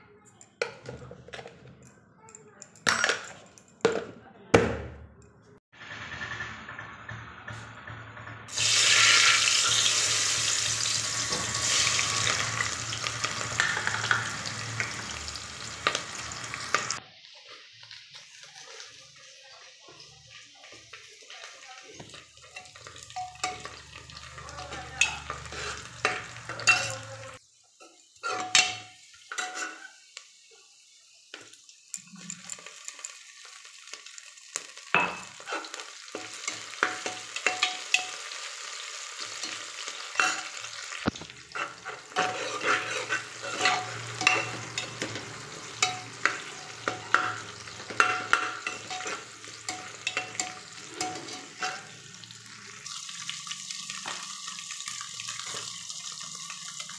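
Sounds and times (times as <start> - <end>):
onions sizzling in oil: 8.5 - 56.9
spoon scraping and clicking pot: 31.9 - 33.2, 40.2 - 45.2, 45.8 - 51.9.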